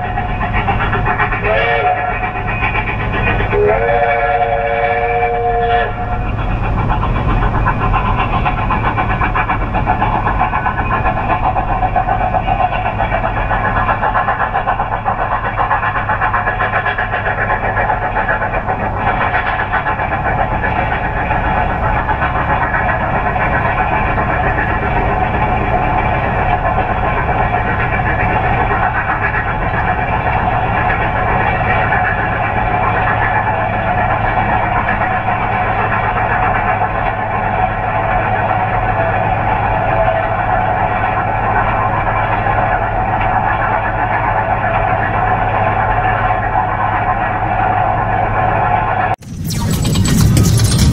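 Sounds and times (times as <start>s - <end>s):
mechanical rumble and hum: 0.0s - 34.6s, 49.0s - 50.9s
train whistle chord: 1.4s - 2.2s, 3.5s - 6.3s.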